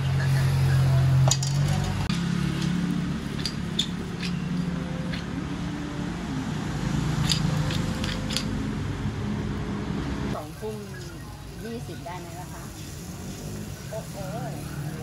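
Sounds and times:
street traffic hum: 0:00.0 - 0:15.0
metal utensils clinking: 0:07.2 - 0:08.5.

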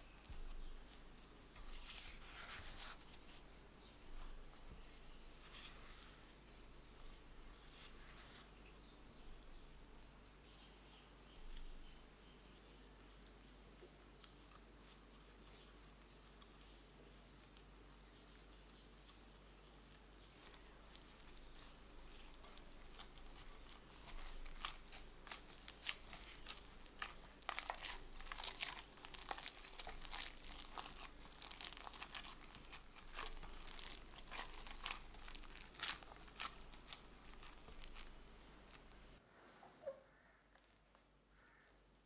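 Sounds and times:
sticky dough crackling and tearing: 0:00.0 - 0:03.5, 0:13.2 - 0:39.2
disposable glove crinkling: 0:00.0 - 0:08.6, 0:14.2 - 0:39.2.

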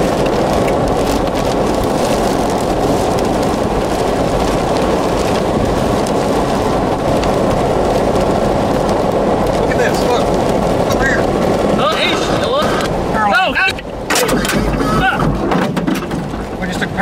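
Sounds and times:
rain against a car: 0:00.0 - 0:17.0
strong wind: 0:00.0 - 0:17.0.

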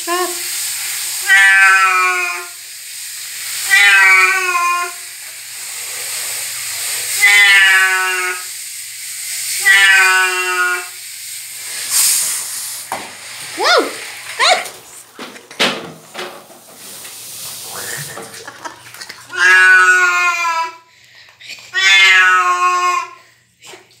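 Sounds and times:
steady hiss: 0:00.0 - 0:19.7
cat meowing: 0:01.2 - 0:02.5, 0:03.7 - 0:05.0, 0:07.2 - 0:08.4, 0:09.6 - 0:10.9, 0:19.3 - 0:20.8, 0:21.8 - 0:23.2.

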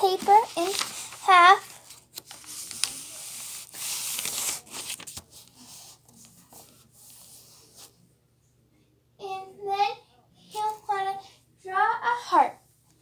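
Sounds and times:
paper being folded and creased: 0:00.0 - 0:07.9.

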